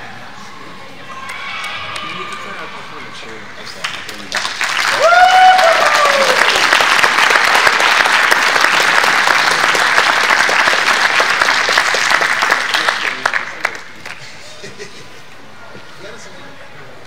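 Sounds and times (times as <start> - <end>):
audience applauding: 3.8 - 14.2
person cheering: 4.9 - 6.6.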